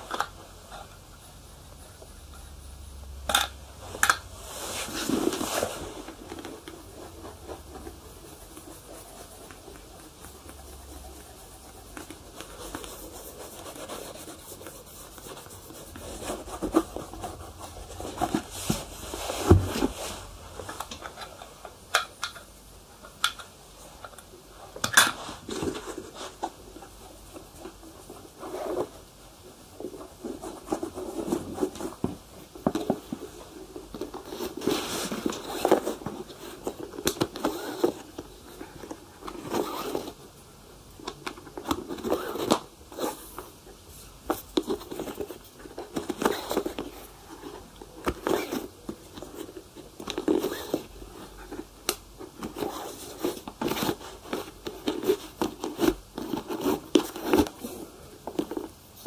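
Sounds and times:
leather being rubbed: 4.4 - 6.2, 6.8 - 20.4, 39.4 - 40.1.

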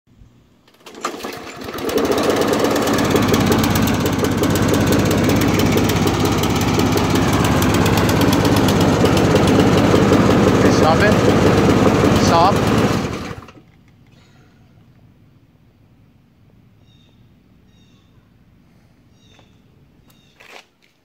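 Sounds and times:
lawn mower engine running: 0.6 - 13.8.

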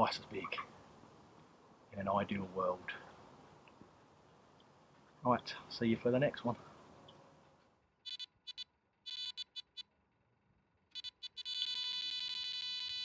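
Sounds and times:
electronic bite alarm beeps: 8.1 - 9.8, 10.9 - 13.0.

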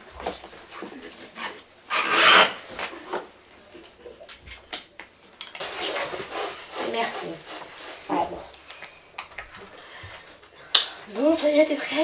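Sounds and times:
nylon strap rubbing and sliding: 1.9 - 2.9.

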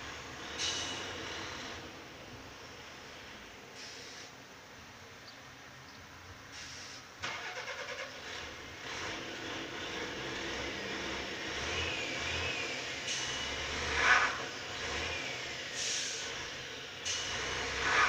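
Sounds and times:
diesel engine cranking and starting: 6.6 - 18.0.

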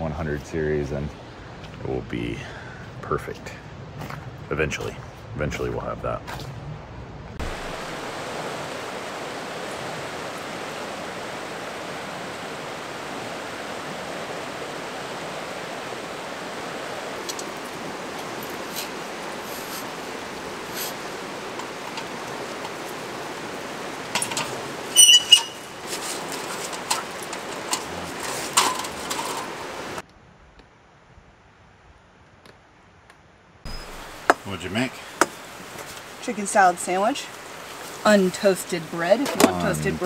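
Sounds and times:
river rushing over rapids: 7.4 - 30.0, 33.7 - 40.0
metal table clanking: 24.1 - 29.7.

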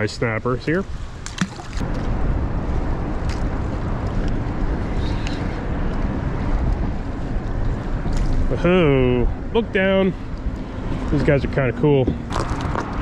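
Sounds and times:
wind rumbling on microphone: 0.0 - 13.0
light water sounds: 0.9 - 2.0.

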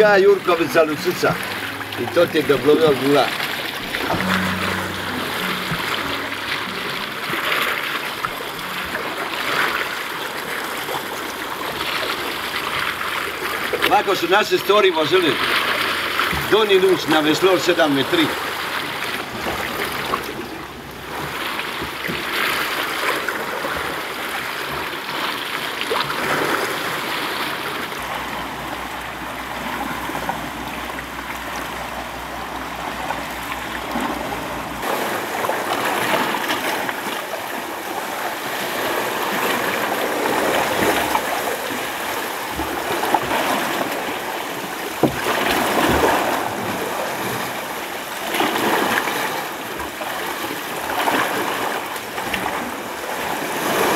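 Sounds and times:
oars splashing through water: 0.0 - 53.9
sea water lapping: 0.0 - 53.9
sharp knocks: 3.8 - 7.1.

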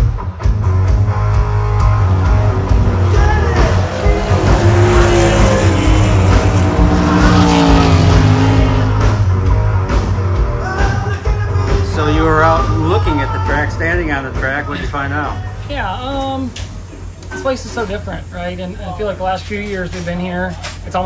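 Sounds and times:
race car engine passing by: 1.0 - 10.6.

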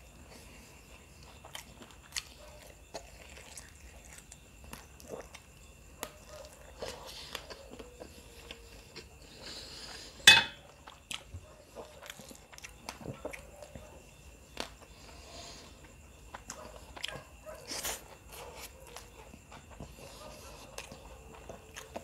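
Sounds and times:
person chewing: 1.2 - 13.8, 14.6 - 22.0.

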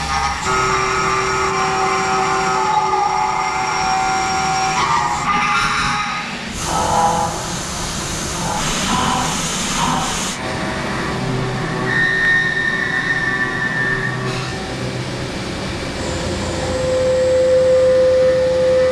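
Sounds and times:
milling machine cutting metal: 0.0 - 14.6
high machine whine: 0.0 - 18.9.

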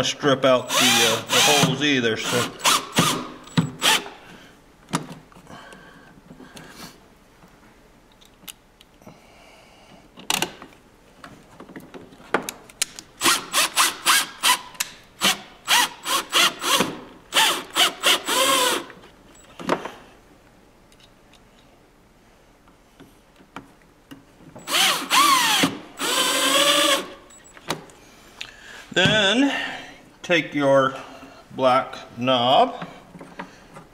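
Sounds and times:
cordless drill motor whine: 0.6 - 4.2, 17.4 - 18.9, 24.6 - 27.2.

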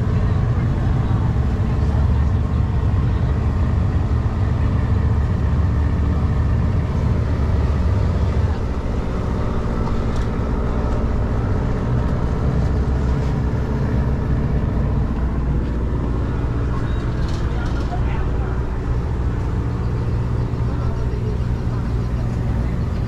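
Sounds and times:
boat engine humming: 0.0 - 23.0.

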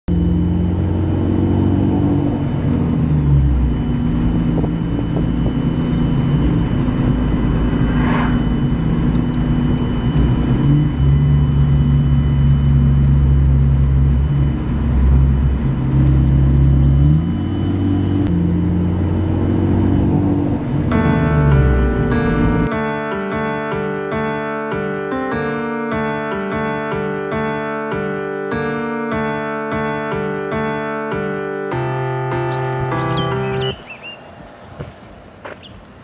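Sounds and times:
car engine running: 0.0 - 22.7, 32.5 - 34.0
faint high turbo whistle: 3.4 - 18.3.

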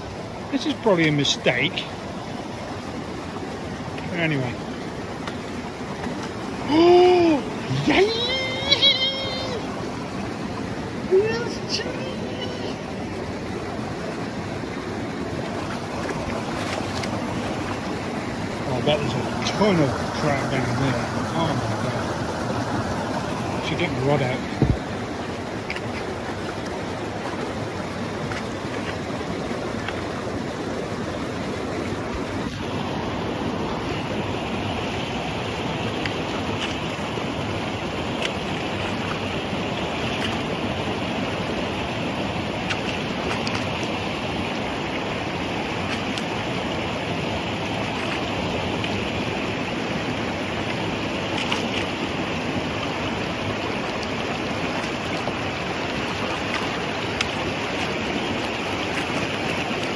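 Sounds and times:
mountain stream rushing: 0.0 - 59.9.

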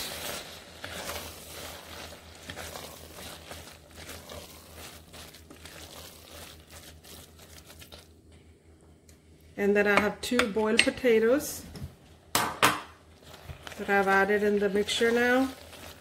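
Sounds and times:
spatula scraping steel pot: 0.0 - 7.7.

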